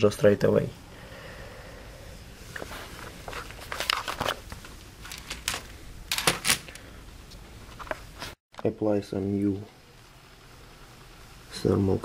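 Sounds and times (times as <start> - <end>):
handling clicks and rustling: 2.5 - 8.7.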